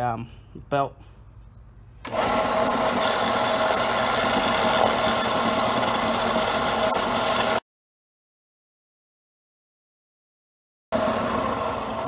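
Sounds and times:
belt sander sanding wood: 0:02.1 - 0:07.6.

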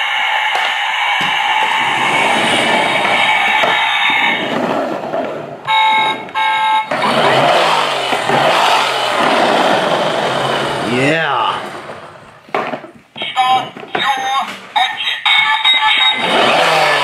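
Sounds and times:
steady electronic tone: 0:00.0 - 0:11.7
toy horn honks: 0:05.7 - 0:08.8
toy engine sound falling in pitch: 0:05.7 - 0:11.7.

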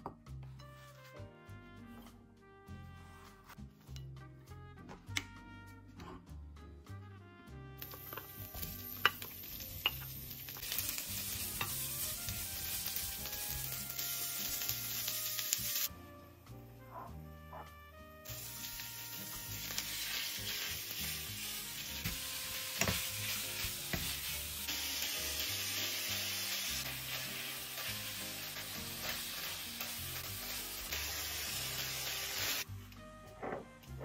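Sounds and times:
food sizzling in a frying pan: 0:07.8 - 0:15.9, 0:18.2 - 0:32.7.

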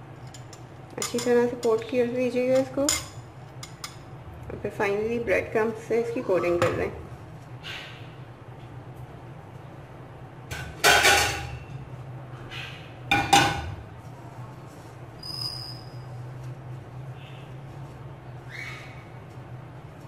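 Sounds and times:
steady low hum: 0:00.0 - 0:20.0
crockery clattering: 0:10.6 - 0:11.6
short high squeak: 0:15.2 - 0:16.1.

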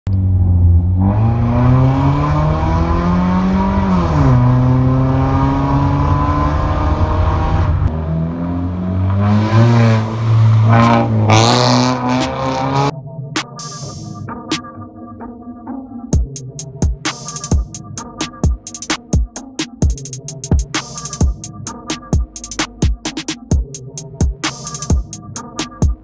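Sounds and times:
car engine accelerating loudly: 0:00.1 - 0:12.9.

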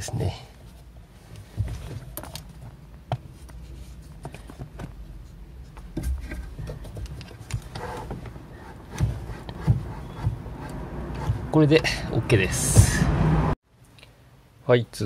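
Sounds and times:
handling and rubbing noise: 0:00.6 - 0:11.9.

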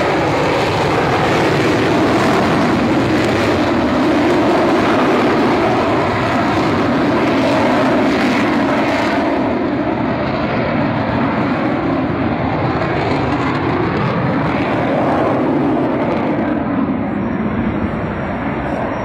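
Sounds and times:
jet flying away: 0:00.0 - 0:19.0.

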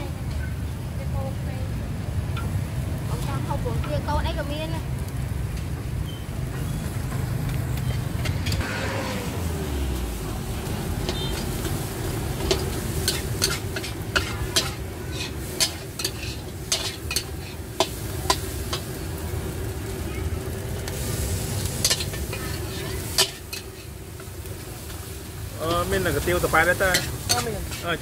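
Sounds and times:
food sizzling: 0:00.0 - 0:28.0
metal spatula clanking on wok: 0:11.1 - 0:18.9, 0:21.8 - 0:24.0, 0:26.8 - 0:28.0.

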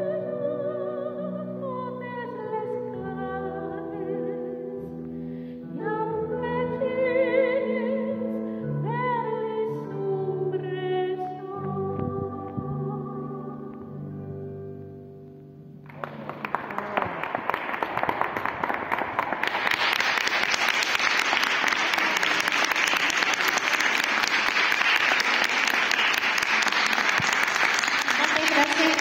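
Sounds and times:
audience applause: 0:15.8 - 0:29.0.

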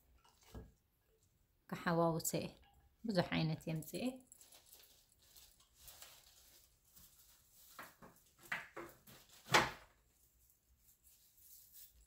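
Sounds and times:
rustling of stems and leaves: 0:03.6 - 0:12.0.

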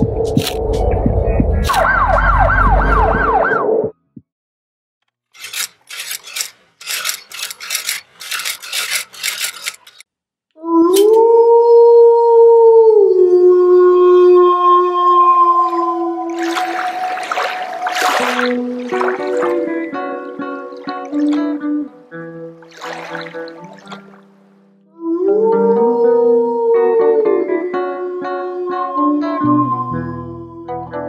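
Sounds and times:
irregular crackling bursts: 0:05.1 - 0:10.1.

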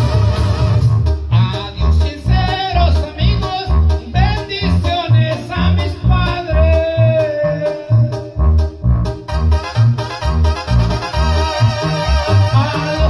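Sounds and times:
backing music with bass beat: 0:00.0 - 0:13.0
man singing into a microphone: 0:01.3 - 0:08.4, 0:12.1 - 0:13.0.

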